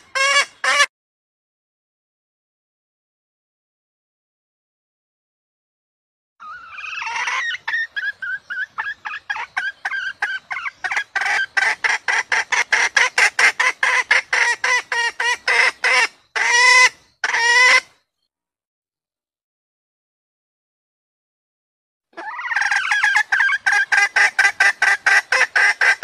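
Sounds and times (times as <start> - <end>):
hen cackling calls: 0.0 - 0.9, 6.4 - 17.9, 22.1 - 26.0
hen clucking: 6.4 - 17.9, 22.2 - 26.0.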